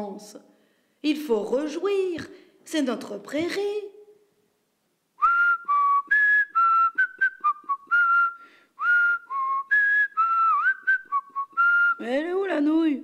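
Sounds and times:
person whistling a tune: 5.2 - 12.1.

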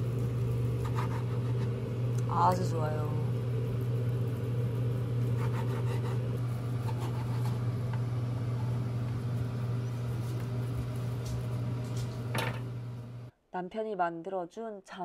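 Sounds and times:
kitchen appliance humming: 0.0 - 13.3.

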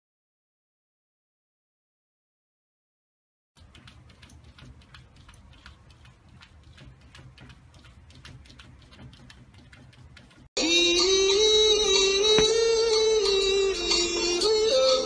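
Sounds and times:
paws tapping on glass door: 3.6 - 10.5
music: 10.6 - 15.0.

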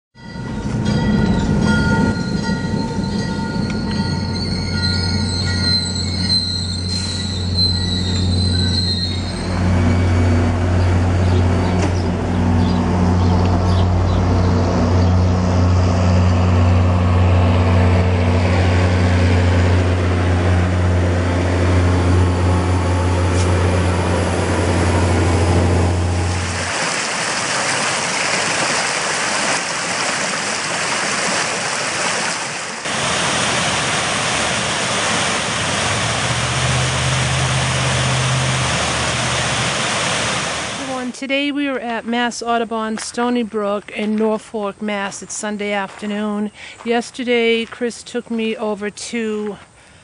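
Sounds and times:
high-pitched metallic squeal: 0.2 - 10.6
diesel locomotive humming: 0.2 - 28.2, 32.7 - 50.0.

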